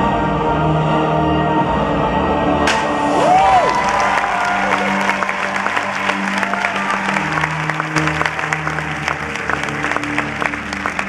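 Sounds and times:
music with held low notes: 0.0s - 11.0s
audience applauding: 3.1s - 11.0s.

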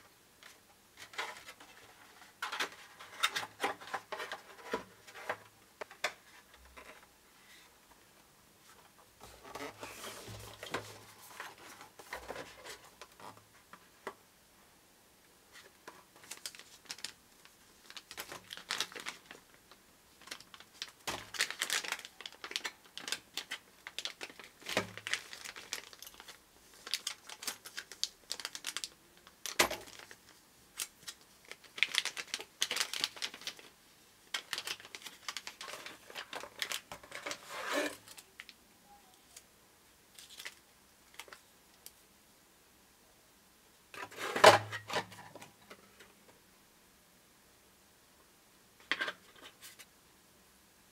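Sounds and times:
plastic wrap crinkling: 16.2s - 17.2s, 17.8s - 38.6s.

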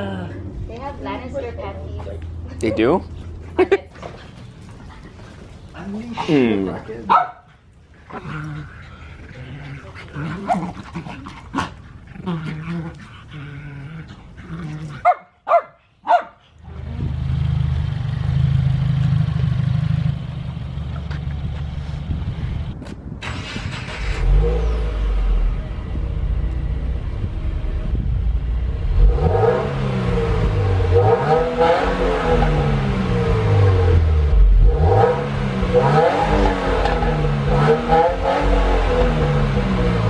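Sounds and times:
dog barking: 7.1s - 7.5s, 15.0s - 16.4s
car engine idling and revving: 16.6s - 40.0s.

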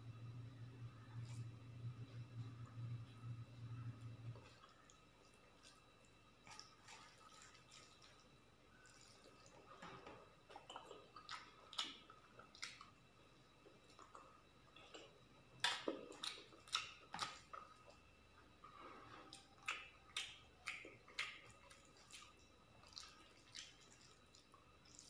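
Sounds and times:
chewing: 4.0s - 12.9s, 13.6s - 25.0s.

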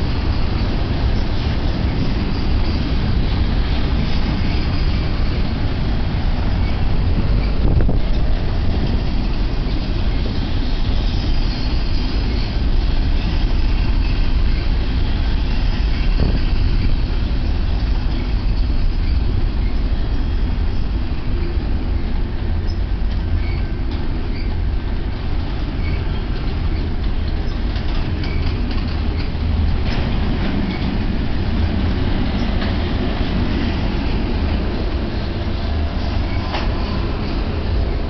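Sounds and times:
train wheels rumbling on rails: 0.0s - 38.0s
high wheel squeals: 0.2s - 7.9s, 9.1s - 17.0s, 17.7s - 24.7s, 25.6s - 29.4s, 33.6s - 37.8s
train knock: 25.2s - 38.0s.

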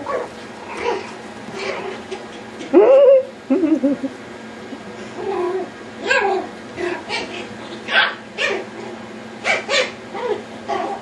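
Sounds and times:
puppies yipping and barking: 6.0s - 11.0s.

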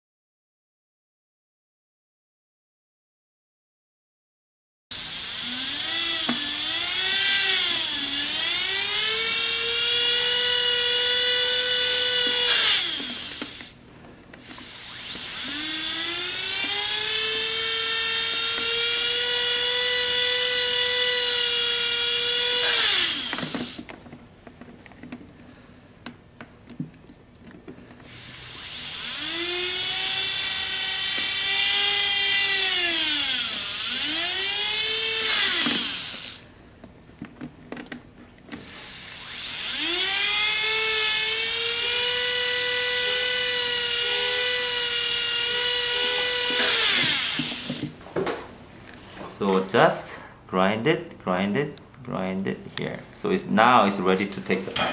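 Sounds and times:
dental drill whining: 4.9s - 13.8s, 14.4s - 23.9s, 28.0s - 36.4s, 38.5s - 48.0s.

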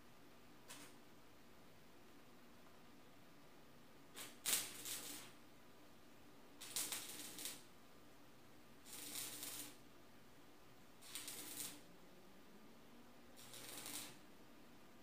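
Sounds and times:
welder crackling: 4.2s - 5.4s, 6.6s - 7.7s, 8.8s - 9.8s, 11.0s - 11.9s, 13.4s - 14.2s.

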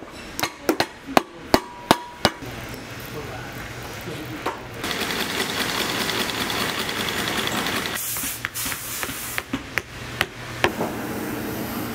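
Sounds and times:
stitching machine running: 4.8s - 8.0s.

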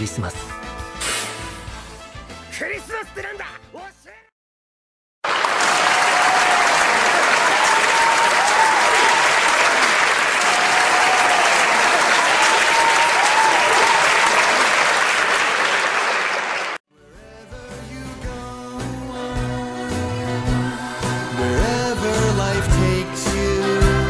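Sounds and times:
audience applauding: 5.2s - 16.8s.

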